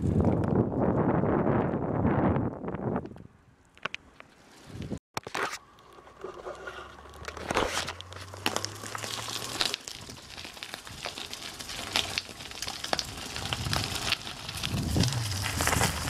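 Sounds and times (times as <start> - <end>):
bicycle tyres crunching on gravel: 4.4 - 16.0.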